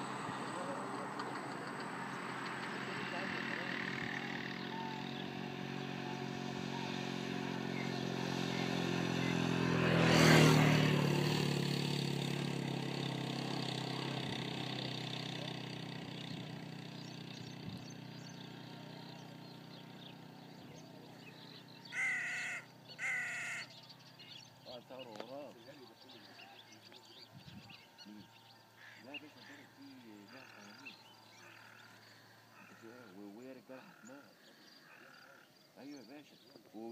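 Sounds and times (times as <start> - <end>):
vehicle engine passing by: 0.0 - 35.9
crow cawing: 21.9 - 23.8, 28.7 - 29.8, 30.4 - 33.2, 33.8 - 35.5.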